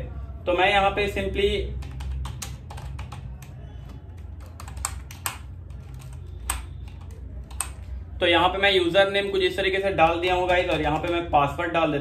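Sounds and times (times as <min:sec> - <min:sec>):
computer keyboard typing: 0:01.3 - 0:08.2, 0:09.1 - 0:11.6.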